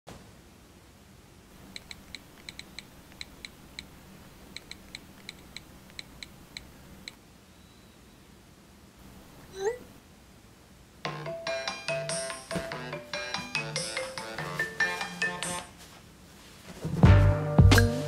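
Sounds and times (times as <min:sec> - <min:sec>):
clicky keyboard typing: 0:01.7 - 0:03.9, 0:04.5 - 0:07.2.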